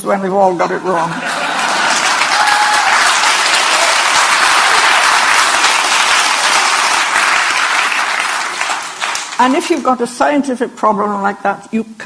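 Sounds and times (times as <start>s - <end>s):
audience applauding: 1.2s - 9.8s.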